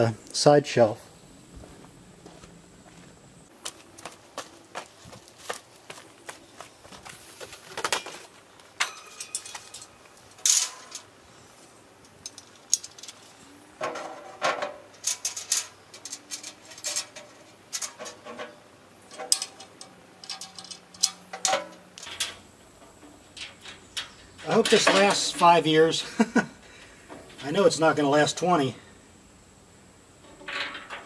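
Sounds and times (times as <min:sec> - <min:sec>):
metal parts clanking and rattling: 0:08.8 - 0:11.2, 0:12.1 - 0:26.0, 0:27.1 - 0:28.5, 0:30.2 - 0:31.0.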